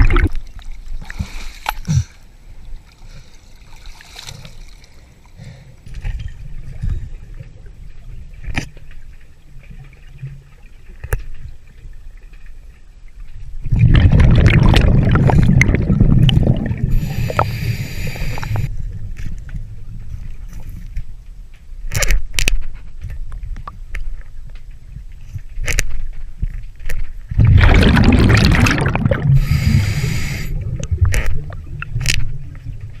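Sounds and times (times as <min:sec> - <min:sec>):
scuba regulator exhaust bubbles: 0:00.0 - 0:00.4, 0:13.7 - 0:18.7, 0:27.4 - 0:32.0
regulator hiss: 0:16.9 - 0:18.7, 0:29.4 - 0:30.6.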